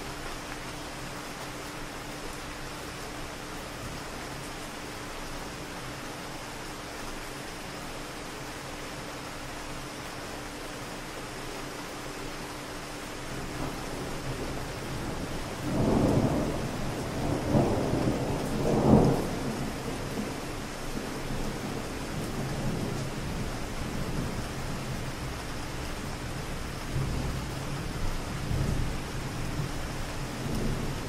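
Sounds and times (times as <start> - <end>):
steady rain on street: 0.0 - 31.0
distant thunder rumbling: 13.6 - 20.4.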